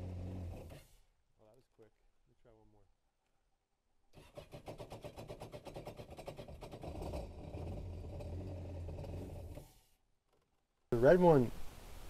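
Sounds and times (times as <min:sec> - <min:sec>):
engine cranking and starting: 0:04.2 - 0:09.8.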